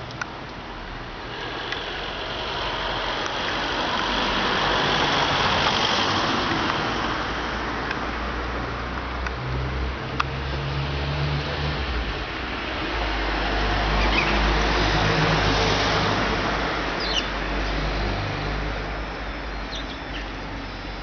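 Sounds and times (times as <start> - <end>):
vehicle passing: 1.3 - 21.0
sparrows chirping: 17.0 - 17.4, 19.4 - 21.0.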